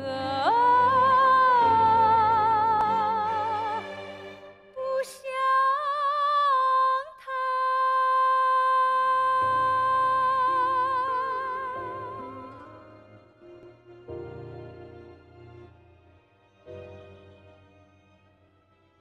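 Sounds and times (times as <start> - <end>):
woman singing with vibrato: 0.0 - 4.0, 4.7 - 12.7
soft low instrumental accompaniment: 0.0 - 5.6, 9.0 - 19.0.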